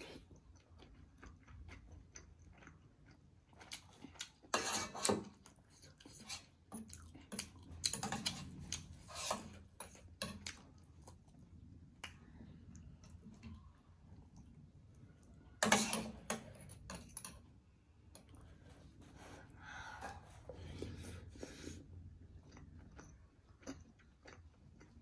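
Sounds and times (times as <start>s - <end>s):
close-up chewing: 0.0s - 4.5s, 5.3s - 15.5s, 20.6s - 25.0s
cutlery scraping steel bowl: 4.5s - 5.4s, 6.1s - 6.5s, 7.9s - 10.5s, 15.6s - 17.3s.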